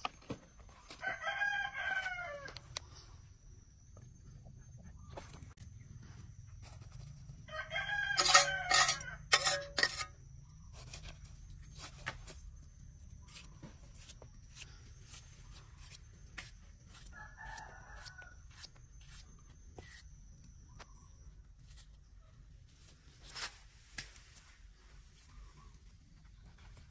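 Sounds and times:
rooster crowing: 0.9s - 2.6s, 7.5s - 9.8s, 17.1s - 18.6s.

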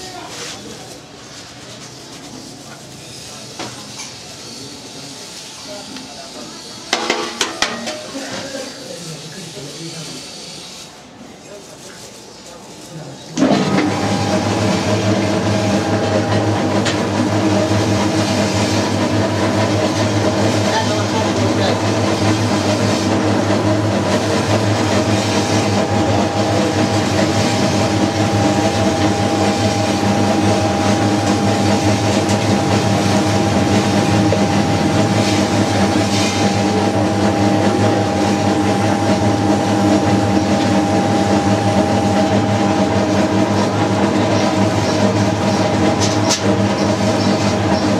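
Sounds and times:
mixing machine humming: 12.7s - 47.9s.

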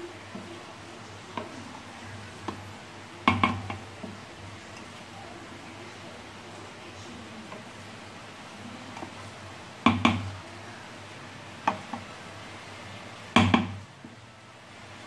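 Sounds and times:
wooden spatula stirring in pot: 0.0s - 15.0s
spatula clacking on metal pot: 3.2s - 4.2s.

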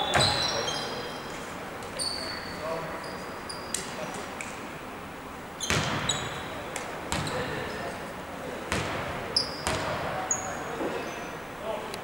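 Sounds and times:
shoe squeaks: 0.0s - 1.3s, 2.0s - 4.2s, 5.6s - 6.6s, 9.4s - 11.4s
basketball bouncing on hardwood: 8.7s - 10.0s.

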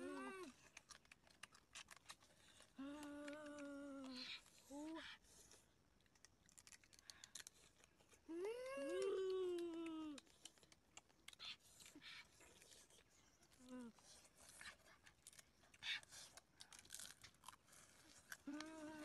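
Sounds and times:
child humming while chewing: 0.0s - 0.9s, 2.6s - 5.2s, 8.2s - 10.6s, 13.5s - 14.2s, 18.3s - 19.0s
crab shells cracking and crunching: 0.2s - 4.6s, 6.0s - 8.2s, 9.6s - 12.8s, 14.5s - 19.0s.

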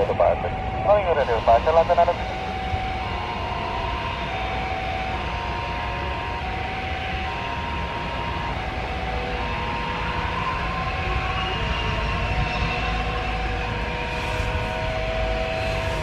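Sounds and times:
jet engines running: 0.0s - 4.0s.

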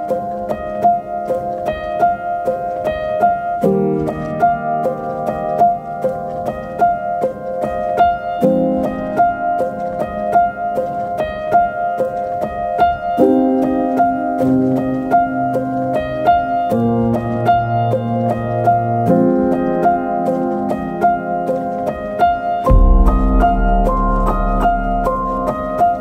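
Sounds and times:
piano repeated notes over chords: 0.0s - 26.0s
deep bass: 22.7s - 25.5s.

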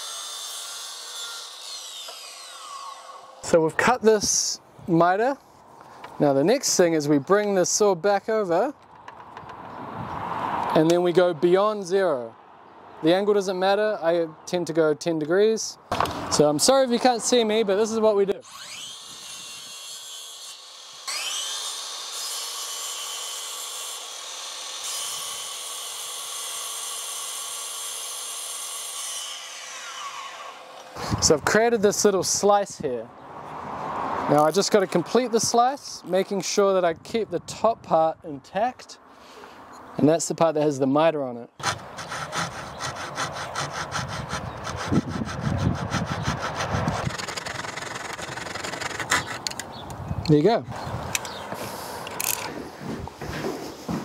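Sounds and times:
mitre saw cutting wood: 0.0s - 3.9s, 17.9s - 31.4s, 41.6s - 49.6s.

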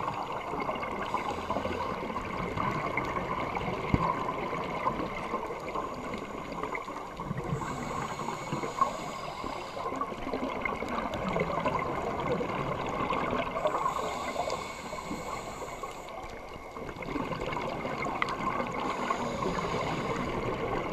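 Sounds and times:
underwater crackle and hiss: 0.0s - 20.9s
scuba regulator breathing hiss: 1.0s - 2.1s, 7.4s - 10.2s, 13.6s - 16.4s, 18.7s - 20.8s.

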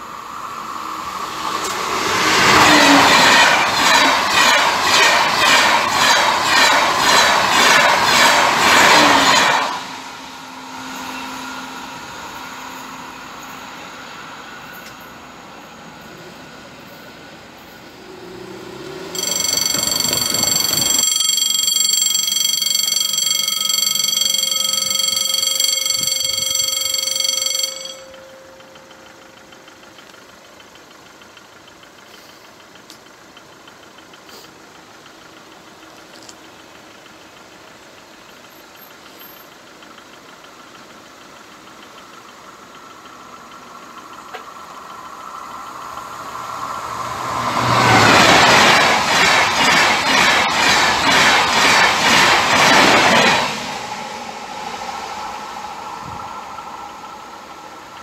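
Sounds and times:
approaching train rushing: 0.0s - 29.5s, 43.0s - 58.0s
level crossing warning bell: 2.4s - 9.7s, 19.1s - 30.5s, 47.3s - 58.0s.

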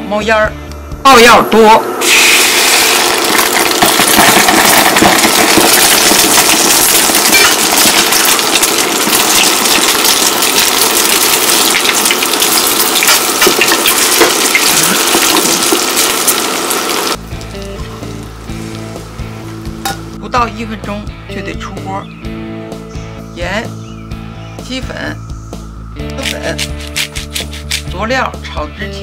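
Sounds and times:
eggs sizzling in hot oil: 2.0s - 19.8s.

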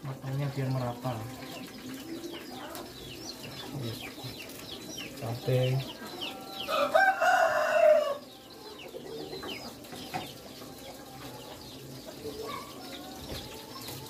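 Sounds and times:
hens clucking: 0.0s - 14.0s
small birds chirping: 0.0s - 14.0s
rooster crowing: 6.5s - 8.4s.

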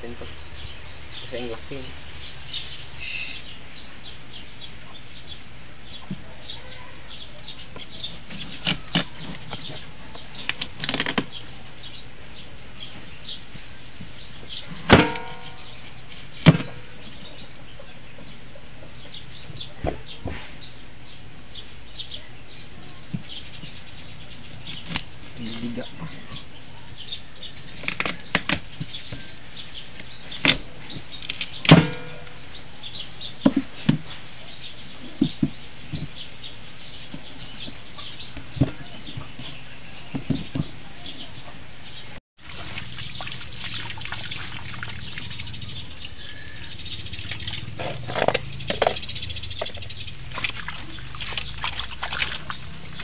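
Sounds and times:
knife chopping on wooden board: 14.8s - 15.7s
hands splashing in water basin: 42.4s - 45.4s, 50.3s - 53.0s.

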